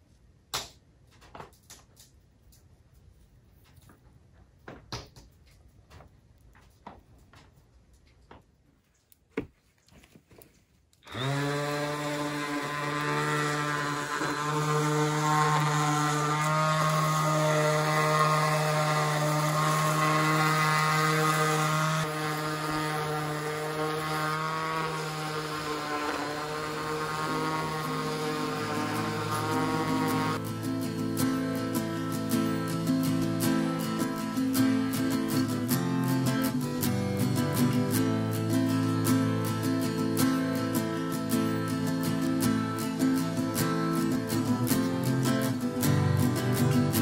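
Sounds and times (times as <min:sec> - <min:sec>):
orbital sander on wood: 0:11.0 - 0:47.0.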